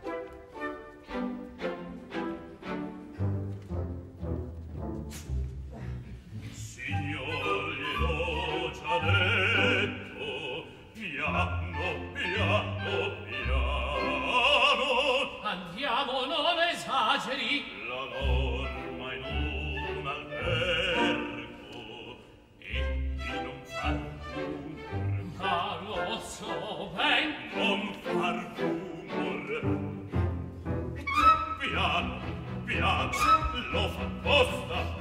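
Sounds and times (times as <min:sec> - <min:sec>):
orchestra: 0:00.0 - 0:35.0
man singing opera: 0:06.5 - 0:30.4, 0:31.0 - 0:35.0.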